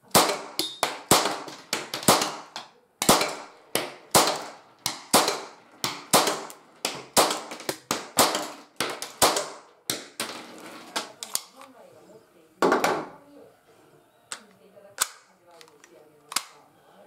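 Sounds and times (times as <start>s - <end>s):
cap gun firing: 0.1s - 10.2s.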